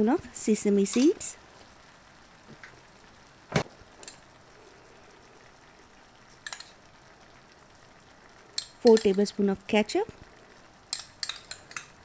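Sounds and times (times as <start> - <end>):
utensil clicking against pan: 6.4 - 6.8, 8.5 - 9.3, 10.9 - 12.0.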